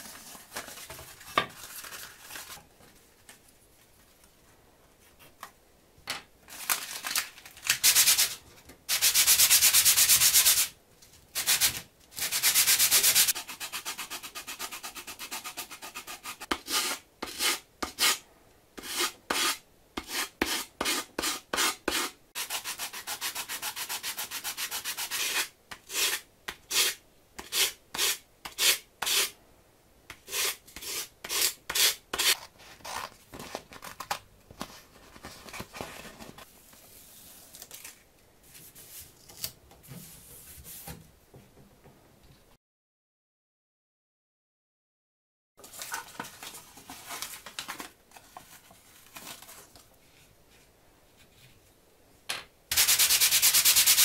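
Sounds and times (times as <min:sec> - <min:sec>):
sanding block rubbing wood: 0:52.7 - 0:54.0.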